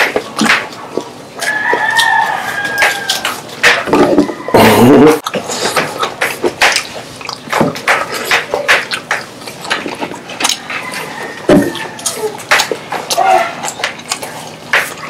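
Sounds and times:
chewing crispy fried chicken: 0.0s - 15.0s.

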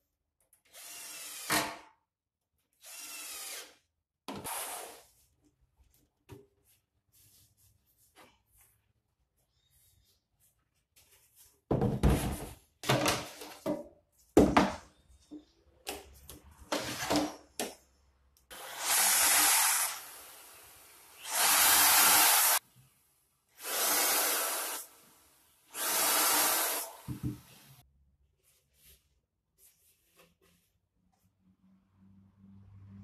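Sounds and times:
electric drill boring: 0.7s - 1.6s, 2.8s - 3.8s, 18.5s - 22.6s, 23.6s - 25.0s, 25.7s - 27.2s.

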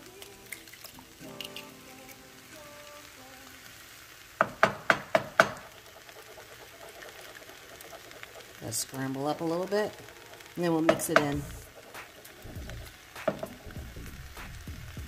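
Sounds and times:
egg sizzling in a pan: 0.0s - 15.0s
spatula tapping a pan: 4.4s - 8.6s, 10.7s - 12.4s, 13.1s - 13.6s.

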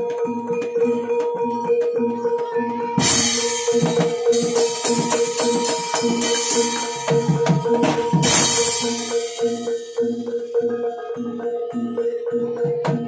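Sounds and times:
drum beats: 0.0s - 13.0s
held tone: 2.4s - 11.0s.

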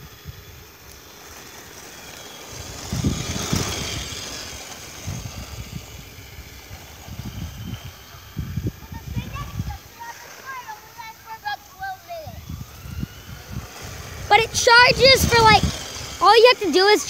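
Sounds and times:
electric motor whining: 0.0s - 17.0s
wind buffeting microphone: 0.0s - 17.0s
tyres rushing on concrete: 0.6s - 7.1s, 13.4s - 17.0s.

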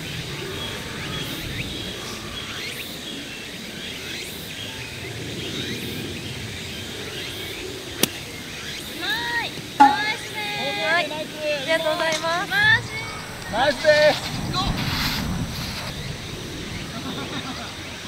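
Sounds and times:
birds chirping: 7.6s - 10.8s.

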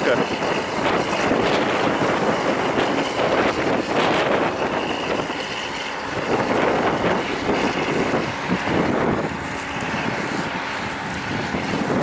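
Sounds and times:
tractor diesel engine under load: 0.0s - 12.0s
wind buffeting microphone: 0.0s - 12.0s.

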